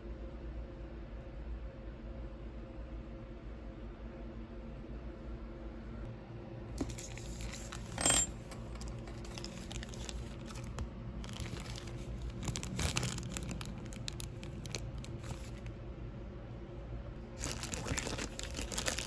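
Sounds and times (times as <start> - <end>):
metal tip clinking on countertop: 7.9 - 8.8
plastic bag crinkling: 8.6 - 15.7, 17.4 - 19.0.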